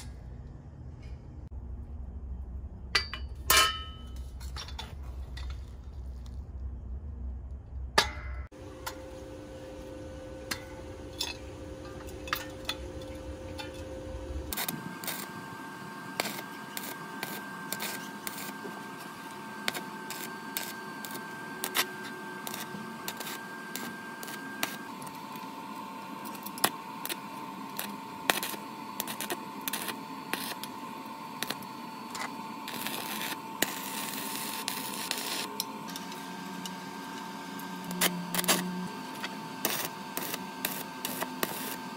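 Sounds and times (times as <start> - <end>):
welding arc crackling and hissing: 8.6 - 41.9.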